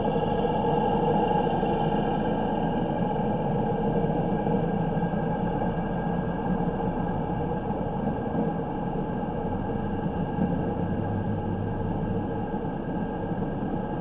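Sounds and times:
city road noise: 6.8 - 14.0.

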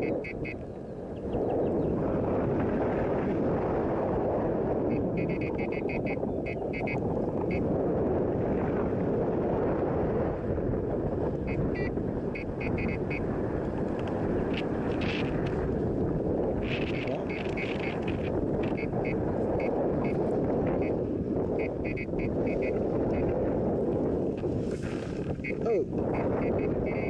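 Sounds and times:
short high beeps: 0.0 - 0.6, 4.9 - 7.6, 11.5 - 13.2, 21.6 - 23.2, 25.4 - 27.0
wind rushing over microphone: 0.0 - 27.0.

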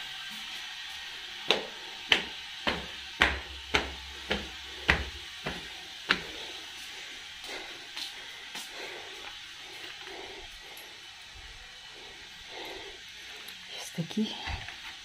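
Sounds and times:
footsteps on concrete stairs: 1.4 - 10.6.

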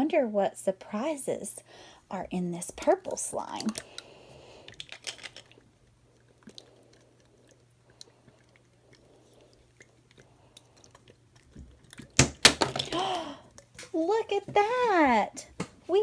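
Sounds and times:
faint low hum: 0.0 - 16.0
slime squelching: 2.7 - 14.8.

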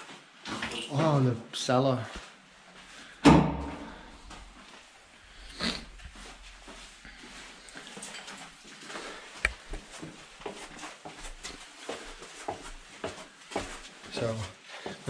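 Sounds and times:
footsteps on stairs: 2.1 - 4.9, 6.0 - 15.0.

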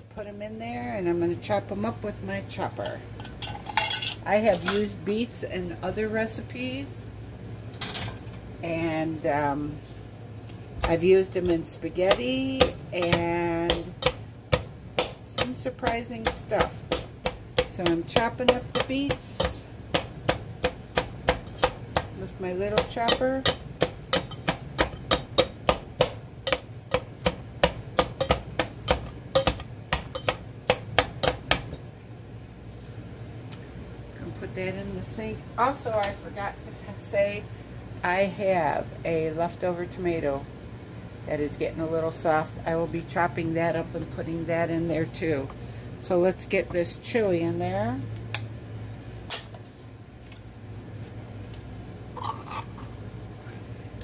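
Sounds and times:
chopper knocking on metal pot: 10.8 - 31.8.

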